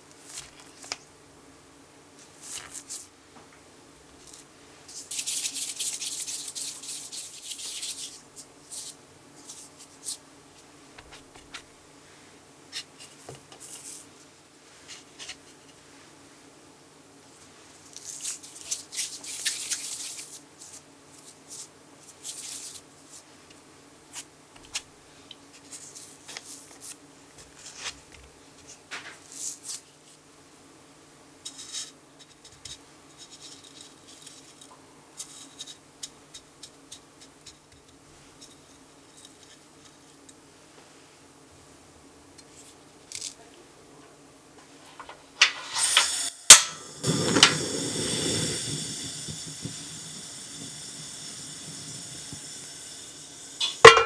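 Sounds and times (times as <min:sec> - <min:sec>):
hands rubbing dough: 0:02.2 - 0:03.1, 0:04.1 - 0:16.2.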